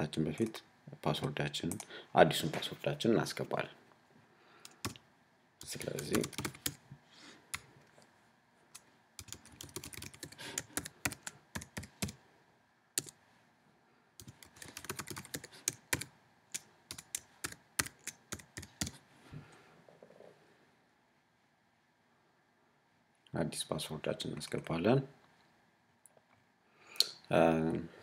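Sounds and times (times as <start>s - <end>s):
keyboard keys typing: 4.7s - 5.0s, 5.6s - 6.8s, 9.2s - 12.2s, 13.0s - 13.2s, 14.2s - 19.0s.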